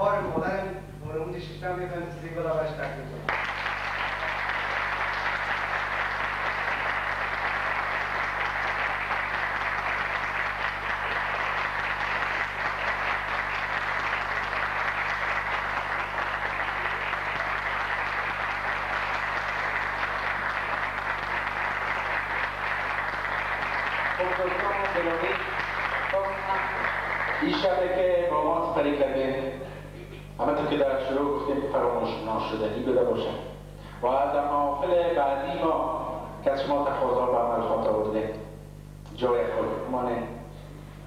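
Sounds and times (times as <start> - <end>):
audience applauding: 3.3 - 28.3.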